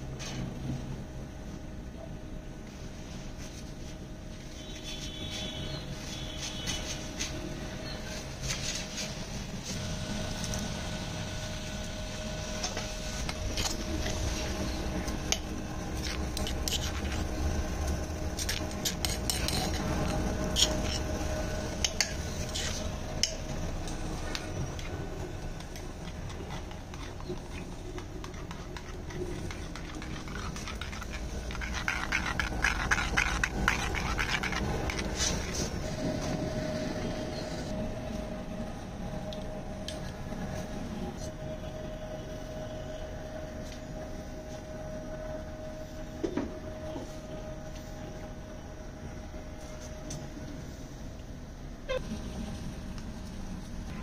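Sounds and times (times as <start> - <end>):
stove blower hum: 6.9 - 54.0
spoon stirring in clay bowl: 12.7 - 23.6, 25.5 - 36.3.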